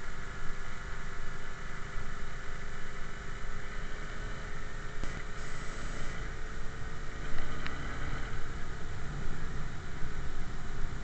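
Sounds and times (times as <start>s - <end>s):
small bicycle engine running: 3.6s - 8.8s.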